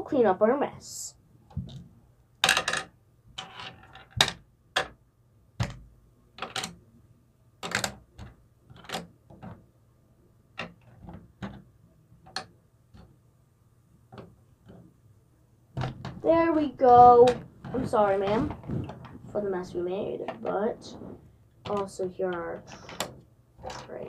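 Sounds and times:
plastic toy pieces clicking: 0:06.4 - 0:06.8, 0:07.6 - 0:09.1.

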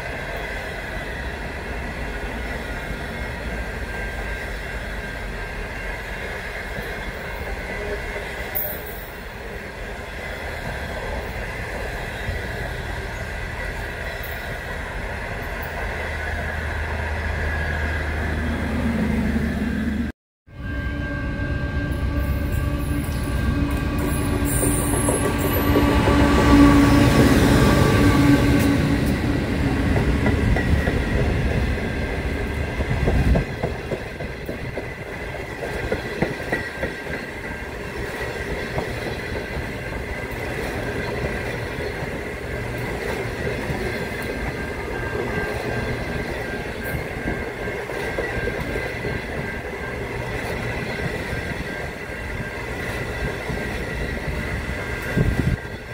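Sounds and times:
diesel locomotive engine: 0:00.0 - 0:55.9
wheels clickety-clack over rail joints: 0:23.2 - 0:55.9.

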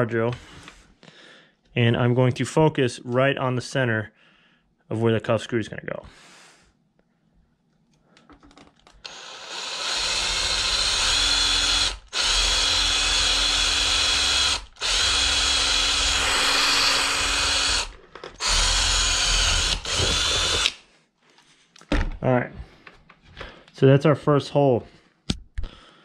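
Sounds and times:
cordless drill whining: 0:09.0 - 0:20.8.

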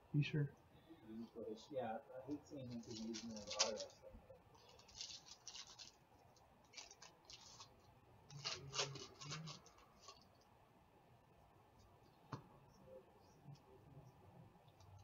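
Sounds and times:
foil wrapper crinkling and tearing: 0:02.7 - 0:04.0, 0:04.6 - 0:06.0, 0:06.6 - 0:10.2.

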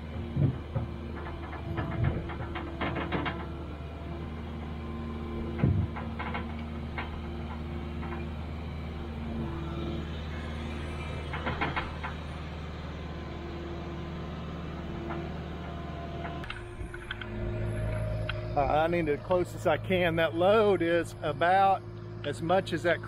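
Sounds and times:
diesel engine under load: 0:00.0 - 0:23.0
metal knocks and clanks: 0:00.3 - 0:03.7, 0:05.4 - 0:08.4, 0:10.8 - 0:12.4, 0:14.9 - 0:22.4.

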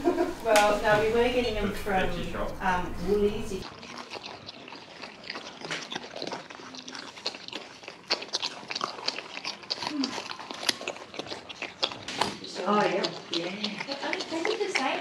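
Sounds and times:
animals crunching carrots: 0:03.2 - 0:15.0.

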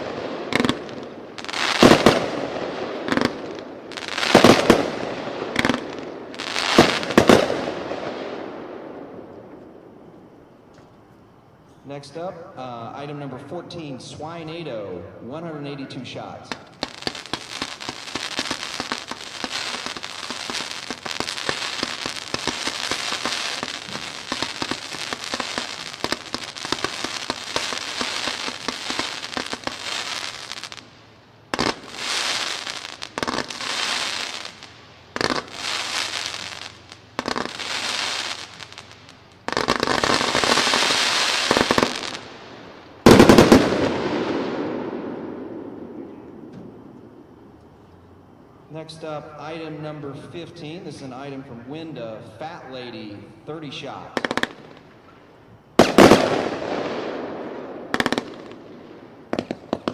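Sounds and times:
firework cake shots and crackle: 0:00.0 - 0:08.4, 0:16.3 - 0:30.9, 0:31.6 - 0:42.4, 0:43.0 - 0:44.8, 0:54.2 - 0:59.9.

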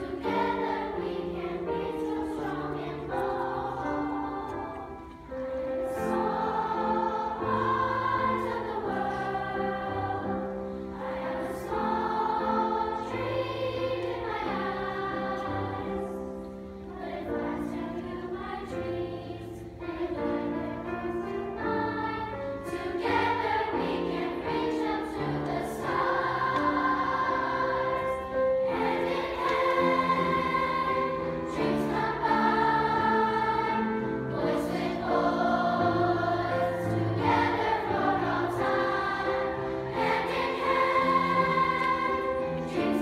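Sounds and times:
children's choir singing: 0:00.0 - 0:43.0
piano accompaniment: 0:00.0 - 0:43.0.

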